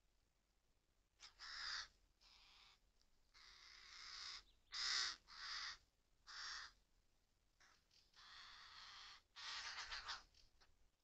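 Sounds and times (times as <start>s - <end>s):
crows cawing: 1.2s - 6.8s, 7.6s - 10.2s.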